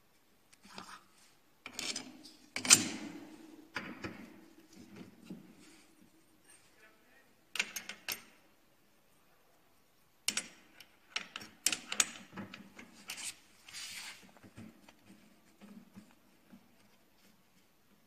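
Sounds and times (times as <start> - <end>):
strap scraping: 13.0 - 14.3.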